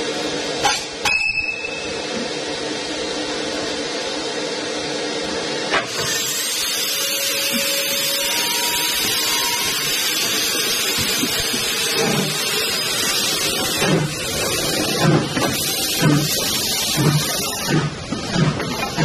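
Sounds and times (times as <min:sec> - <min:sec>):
steam locomotive hissing: 0:05.4 - 0:19.0.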